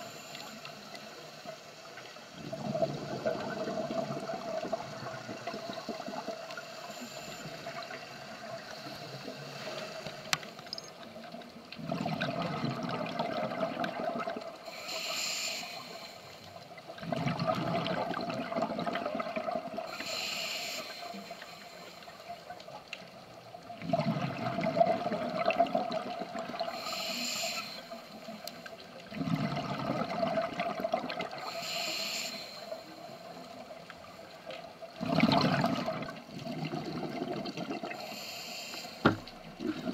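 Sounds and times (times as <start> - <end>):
regulator hiss: 0.0 - 2.4, 4.8 - 10.6, 14.7 - 16.5, 19.9 - 22.4, 26.7 - 28.8, 31.4 - 33.6, 38.0 - 39.4
faint steady tone: 0.0 - 11.8, 13.9 - 17.0, 19.1 - 23.8, 26.0 - 29.1, 31.3 - 34.9, 37.9 - 39.6
exhaled air bubbling underwater: 0.0 - 39.9.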